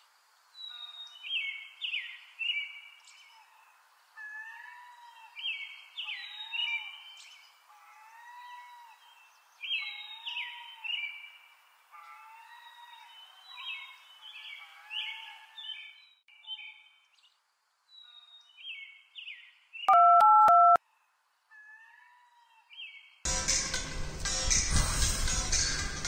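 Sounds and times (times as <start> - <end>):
mobile phone ringing: 19.9 - 20.8.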